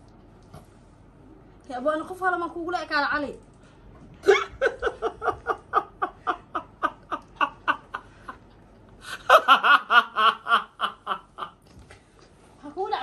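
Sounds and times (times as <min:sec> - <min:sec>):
woman and man laughing: 0:04.2 - 0:08.4, 0:09.1 - 0:11.6.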